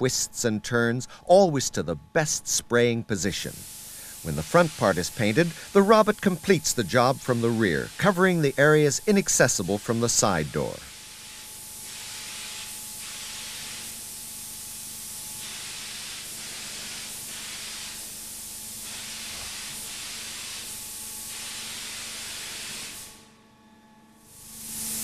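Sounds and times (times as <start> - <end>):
faint steady hum: 0.0 - 11.0
spray gun hissing: 3.4 - 23.2, 24.2 - 25.0.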